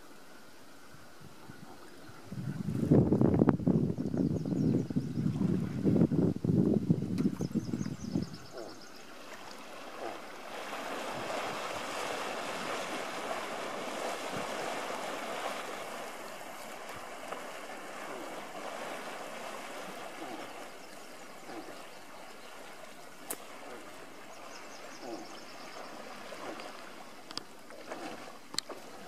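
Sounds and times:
water splashing and rushing: 8.6 - 29.0.

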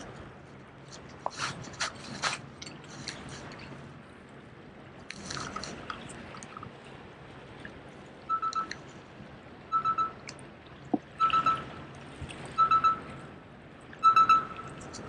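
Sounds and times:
short rustle: 0.9 - 3.8.

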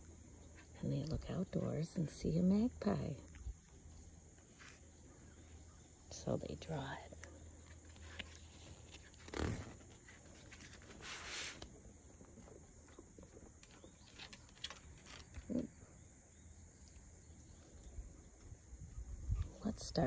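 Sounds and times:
paper page swish: 10.6 - 11.7.

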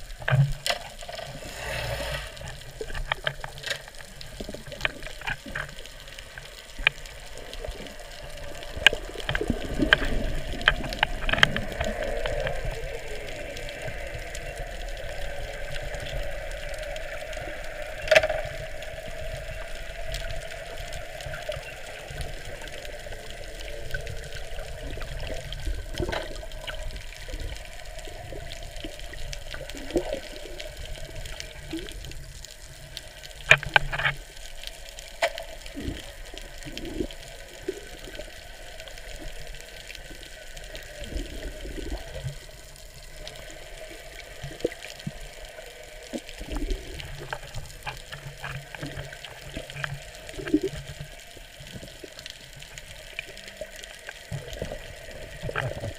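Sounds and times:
muffled underwater wash: 0.0 - 55.9
underwater clicks and knocks: 0.1 - 1.4, 2.4 - 12.7, 17.8 - 27.7, 33.2 - 34.4, 46.2 - 51.9.

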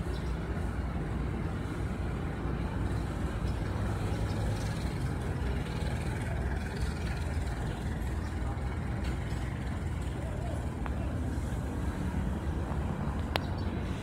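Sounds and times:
train wheels rumbling on rails: 0.0 - 13.4.

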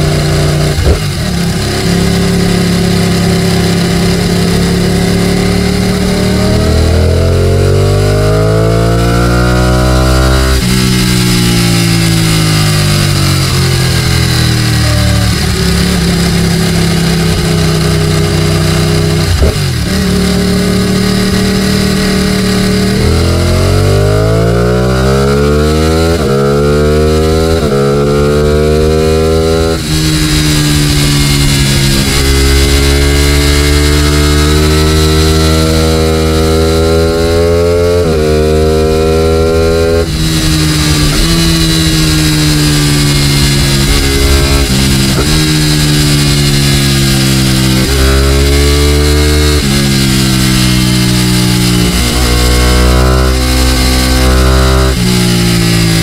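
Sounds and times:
motorcycle engine revving: 0.0 - 56.0
wind noise: 28.9 - 56.0.

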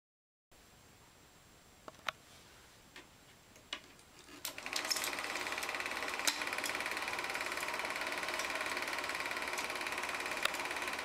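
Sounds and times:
rapid mechanical clatter: 4.4 - 11.0.

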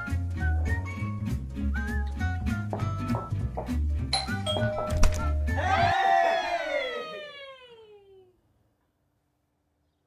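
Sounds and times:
upbeat jazzy music: 0.0 - 5.9.

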